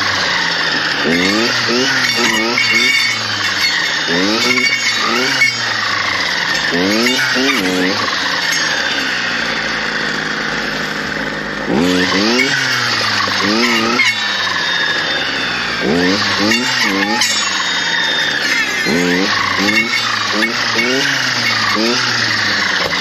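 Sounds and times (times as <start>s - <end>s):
clearing saw engine revving: 0.0s - 23.0s.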